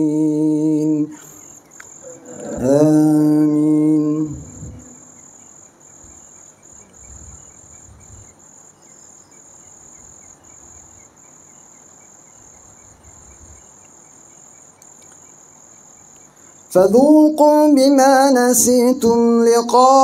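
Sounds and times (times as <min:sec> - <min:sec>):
night insects chirring: 0:00.0 - 0:20.0
soft low rumbles: 0:04.0 - 0:05.2, 0:06.0 - 0:08.4.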